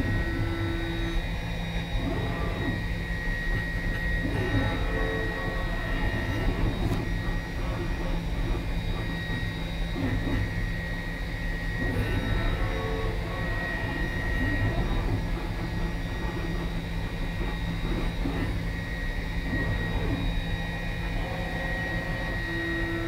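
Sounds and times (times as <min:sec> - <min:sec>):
milling machine drone: 0:00.0 - 0:23.0
thin high whine: 0:00.0 - 0:23.0.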